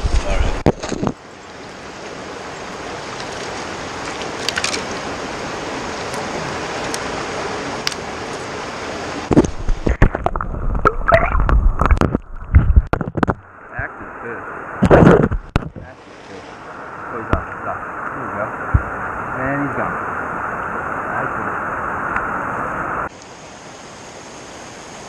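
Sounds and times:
creek water rushing: 0.0 - 25.0
splashes and knocks in water: 3.0 - 5.1, 9.2 - 13.4.

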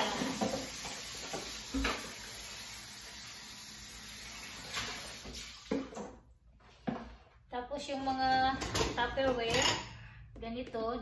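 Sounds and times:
kitchen faucet running: 0.0 - 6.1.

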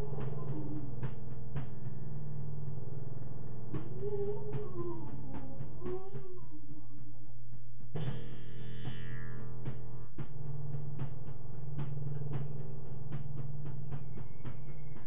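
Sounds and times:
low synthesizer drone: 0.0 - 15.0
slow gliding synth tones: 0.0 - 15.0.

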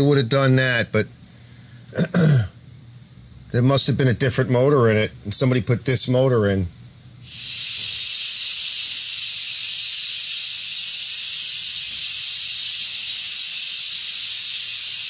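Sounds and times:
high hiss of air or spray: 7.2 - 15.0.

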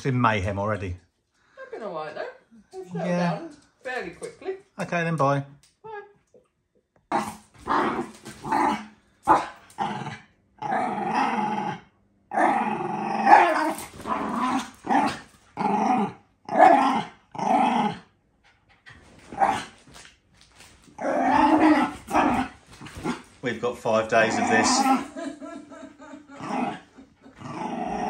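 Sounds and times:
dogs growling and barking: 7.0 - 28.0.

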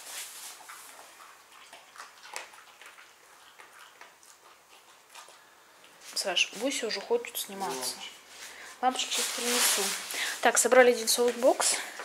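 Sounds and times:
faint rustling: 5.2 - 12.0.

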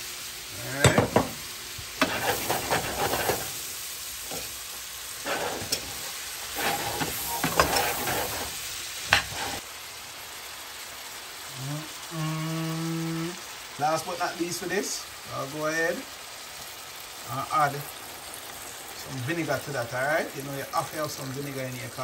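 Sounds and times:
onions sizzling in a pan: 0.0 - 22.0
spoon scraping a pan: 2.0 - 3.6, 4.3 - 9.6.

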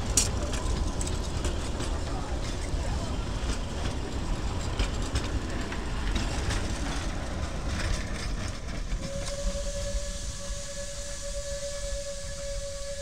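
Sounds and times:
train wheels clicking over rail joints: 0.0 - 9.6
low rumble of carriages: 0.0 - 13.0
steam whistle: 9.0 - 13.0.

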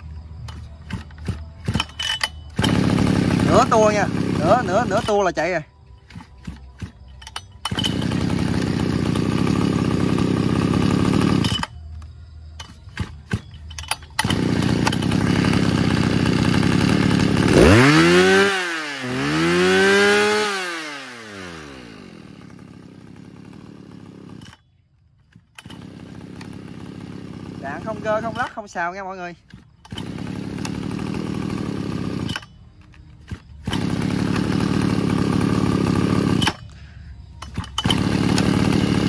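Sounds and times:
two-stroke engine revving: 0.0 - 11.8, 12.6 - 24.6, 25.3 - 39.0
pull cord: 0.4 - 5.4, 6.0 - 9.6, 11.0 - 15.8, 29.4 - 35.3, 37.4 - 39.0.

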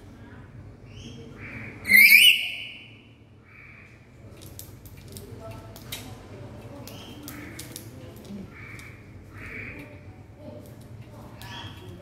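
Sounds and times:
raspy squawks: 1.4 - 2.9
parrot screeching: 1.9 - 2.6.

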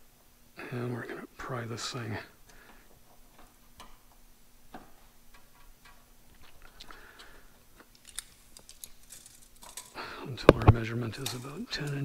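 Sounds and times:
hand tools tapping metal: 8.1 - 12.0.

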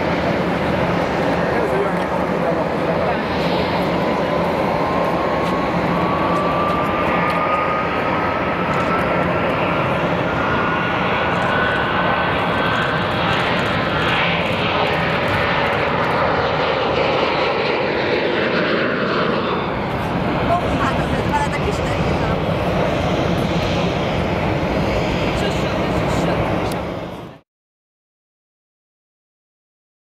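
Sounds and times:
jet engines at takeoff thrust: 0.0 - 27.4.

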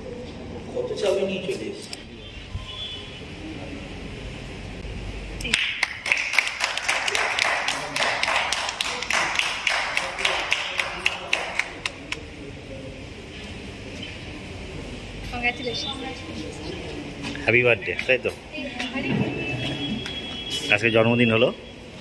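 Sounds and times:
people clapping: 5.4 - 12.3.

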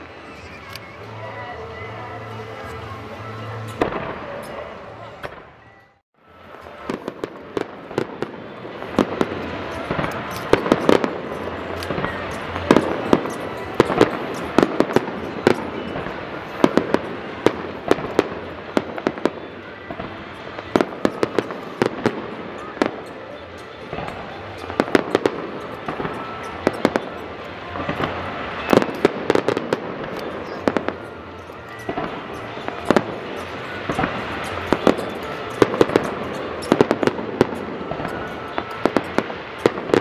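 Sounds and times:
fireworks crackling: 0.0 - 5.6, 6.3 - 40.0
music with held tones: 0.0 - 40.0
fireworks bursting: 1.8 - 5.6, 6.4 - 40.0.

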